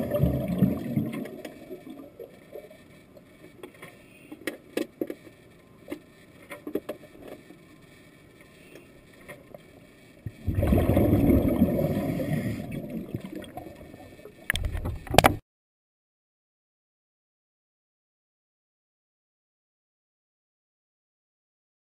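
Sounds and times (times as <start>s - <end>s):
rush of underwater bubbles: 0.0s - 2.0s, 10.3s - 14.0s.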